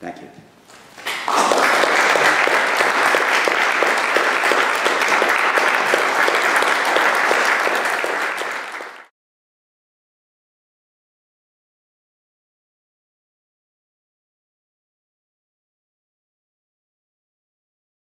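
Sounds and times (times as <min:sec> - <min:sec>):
audience applauding: 0:00.9 - 0:09.1.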